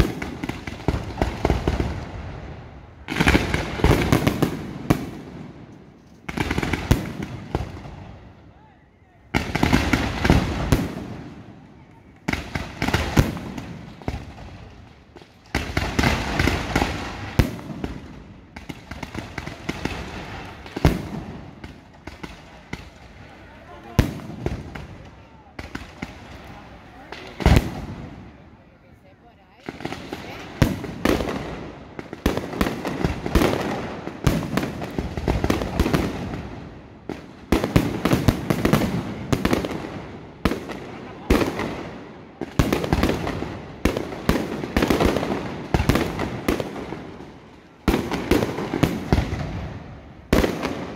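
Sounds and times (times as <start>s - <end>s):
firework crackling: 0.0s - 8.4s, 9.3s - 50.9s
sharp firework bangs: 23.8s - 28.3s.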